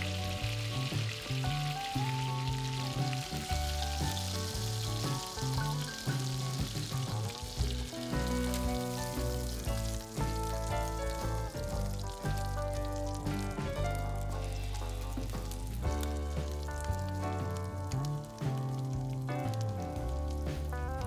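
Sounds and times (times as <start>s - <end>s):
background music: 0.0s - 21.0s
chicken sizzling in butter: 0.0s - 21.0s.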